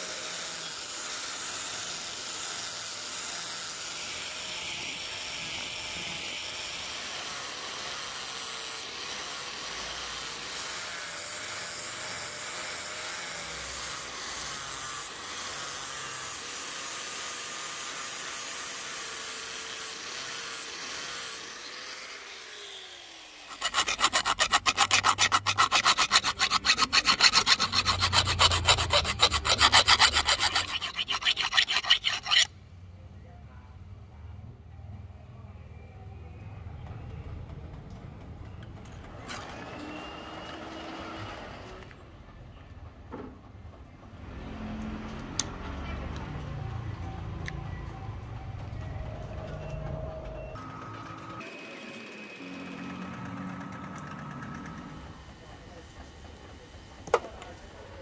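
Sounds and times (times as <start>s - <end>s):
angle grinder grinding steel: 0.0s - 32.5s
hand file rasping: 23.5s - 32.5s.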